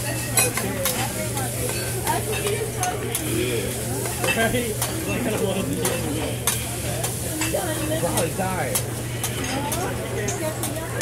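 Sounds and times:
rice sizzling on a griddle: 0.0 - 11.0
metal spatulas scraping and clicking: 4.0 - 10.8.

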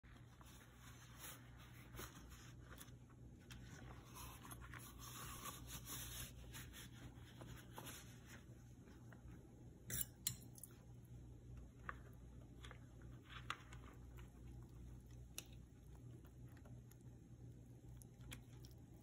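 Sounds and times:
rubber gloves rubbing and scraping: 0.0 - 9.5
low steady hum: 0.0 - 19.0.

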